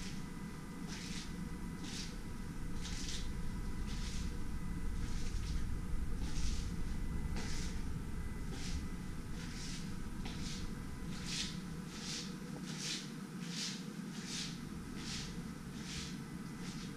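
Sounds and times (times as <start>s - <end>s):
steady low hum: 0.0s - 16.9s
footsteps on tiled floor: 7.4s - 7.8s, 9.4s - 13.0s.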